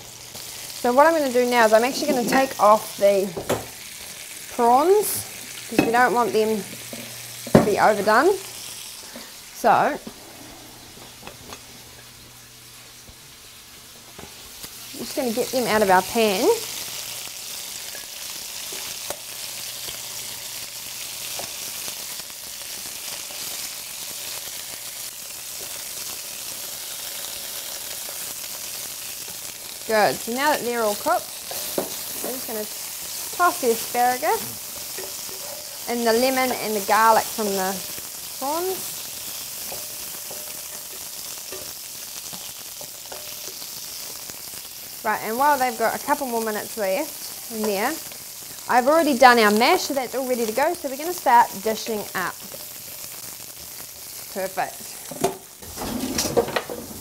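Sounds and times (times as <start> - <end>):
food sizzling in a frying pan: 0.0 - 57.0
tongs tapping a pan: 34.8 - 36.8, 39.6 - 44.2.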